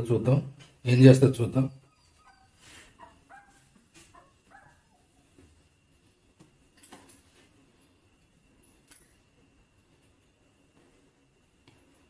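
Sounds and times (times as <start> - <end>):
puppies whimpering: 1.8 - 5.0.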